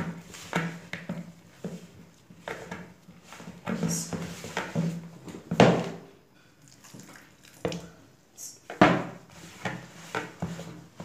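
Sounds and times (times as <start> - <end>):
hands mixing wet dough: 6.6 - 11.0.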